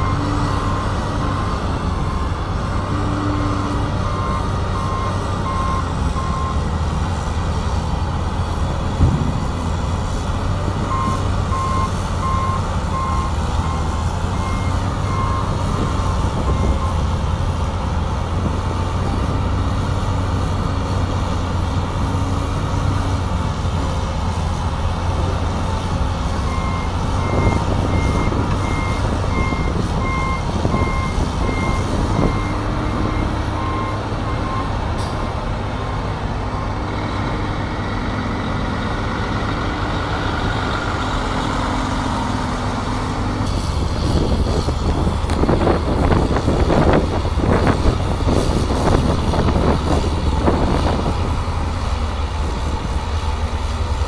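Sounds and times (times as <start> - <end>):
heavy machinery drone: 0.0 - 54.0
reversing alarm beeping: 4.0 - 6.6, 10.8 - 15.6, 26.5 - 34.8.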